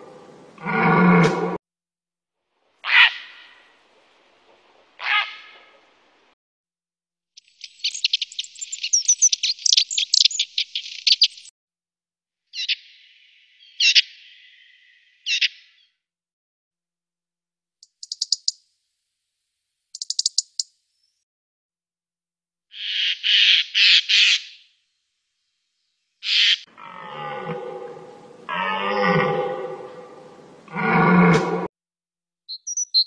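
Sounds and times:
songbirds chattering and trilling: 7.4s - 11.5s, 17.8s - 18.6s, 20.0s - 20.7s, 26.2s - 31.3s.

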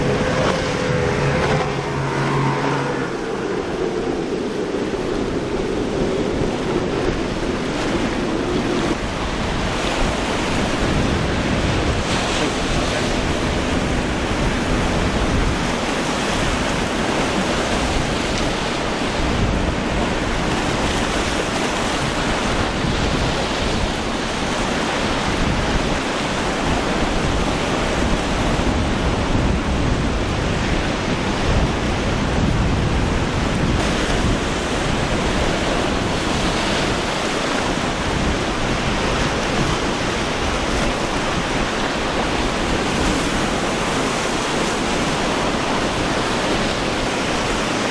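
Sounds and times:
surf and breaking waves: 0.0s - 47.9s
wind buffeting microphone: 0.0s - 47.9s.

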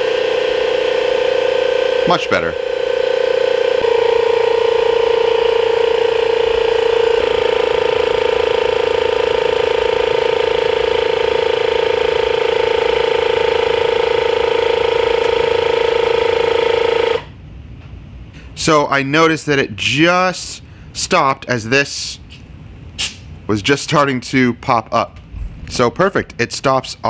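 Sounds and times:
air compressor whirring: 0.0s - 17.4s.

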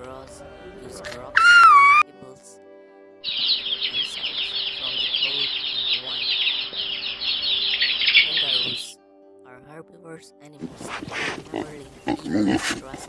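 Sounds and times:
chicks peeping: 3.3s - 8.9s.

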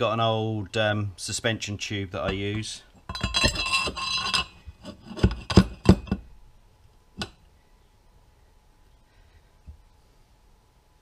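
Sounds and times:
metal tube scraping with ringing: 3.1s - 6.2s.

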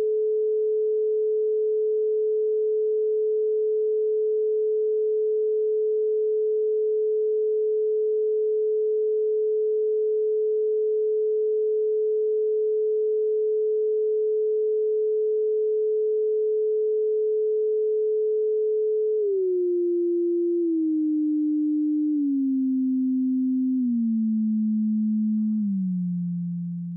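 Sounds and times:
sine tone stepping down: 0.0s - 26.9s.

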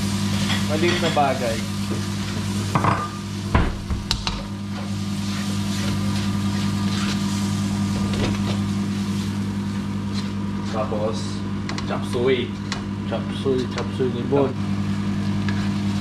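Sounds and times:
food sizzling in a wok: 0.0s - 10.8s.

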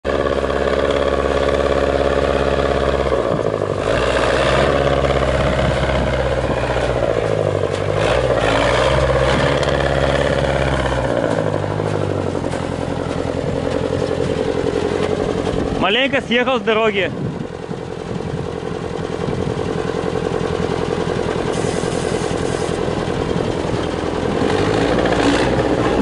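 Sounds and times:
truck engine running under load: 0.0s - 26.0s.

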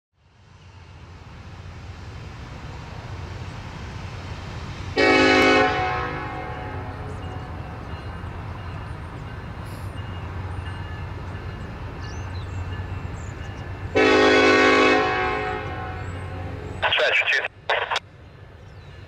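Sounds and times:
locomotive horn blast: 5.0s - 7.0s, 14.0s - 16.8s
locomotive engine rumble: 15.9s - 19.0s.

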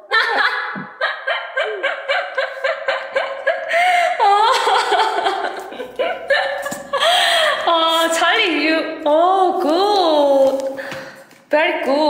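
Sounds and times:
person laughing hard: 0.0s - 7.7s.

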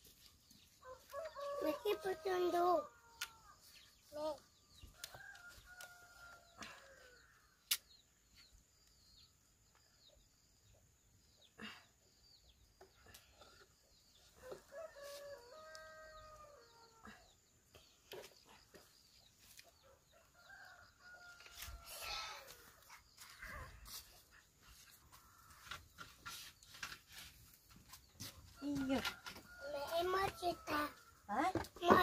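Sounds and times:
rooster crowing: 0.8s - 2.2s.

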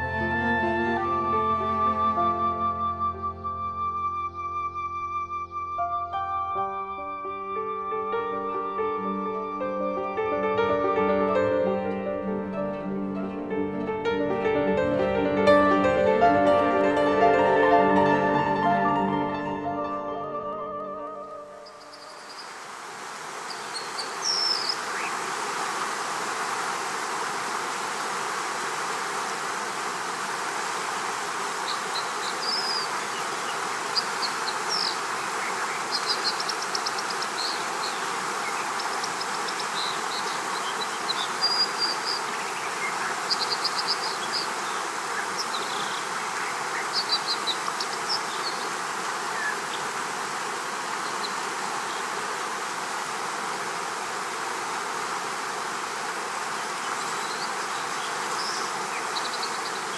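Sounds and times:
steady rushing hiss: 6.6s - 59.9s
bird chirps and trills: 21.0s - 22.6s, 23.5s - 25.2s, 31.6s - 48.7s.

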